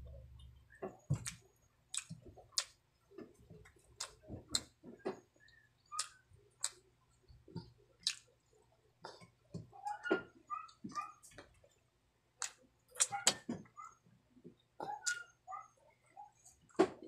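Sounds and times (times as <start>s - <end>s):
person chewing food: 0.8s - 8.4s, 12.4s - 13.5s
wet mouth clicks and smacks: 1.2s - 2.8s, 6.0s - 6.8s, 8.0s - 8.3s, 12.4s - 13.5s.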